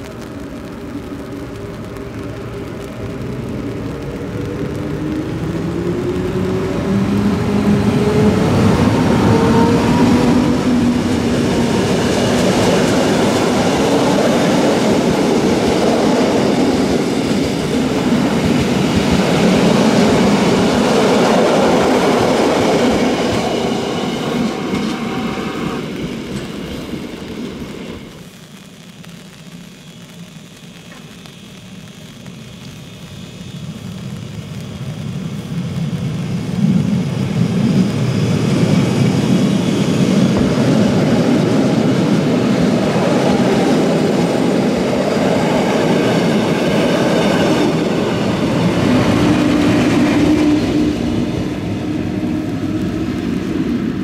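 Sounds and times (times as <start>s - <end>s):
train wheels clacking on rails: 6.8s - 28.2s.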